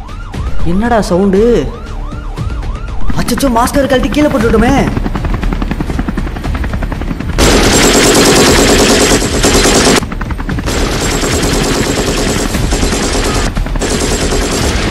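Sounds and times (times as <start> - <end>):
rapid machine-gun fire: 7.4 - 14.9.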